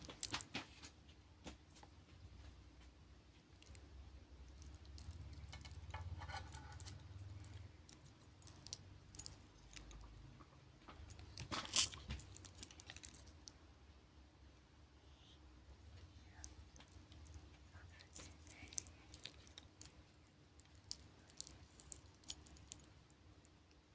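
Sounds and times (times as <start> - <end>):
plastic wrap crinkling: 10.9 - 13.4.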